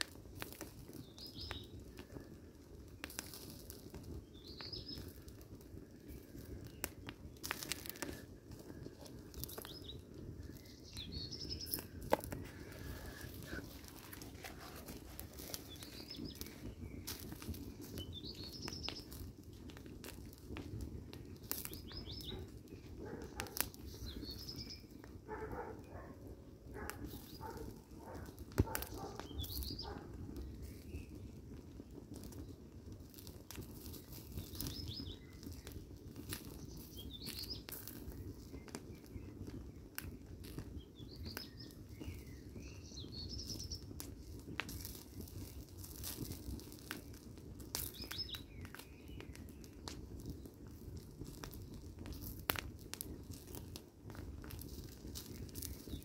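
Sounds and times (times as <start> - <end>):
fire crackling and popping: 0.0 - 56.0
birds chirping: 7.5 - 19.2, 21.4 - 31.2.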